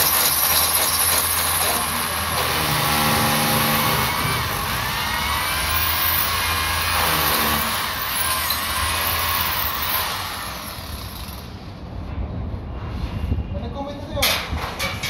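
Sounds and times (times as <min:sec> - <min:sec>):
power drill running: 0:00.0 - 0:11.4.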